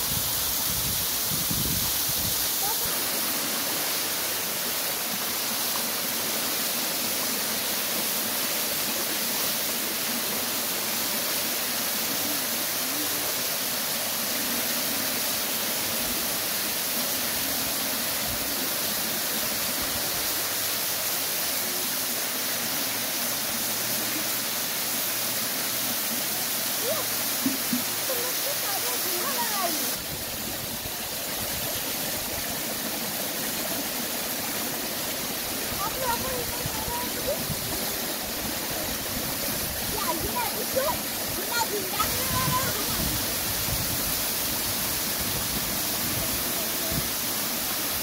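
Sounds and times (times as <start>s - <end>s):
steady rushing hiss: 0.0s - 48.0s.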